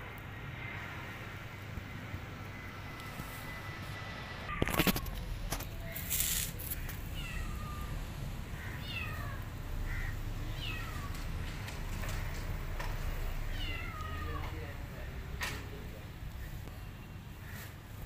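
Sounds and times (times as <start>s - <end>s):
cat meowing: 6.8s - 11.3s, 13.4s - 14.7s.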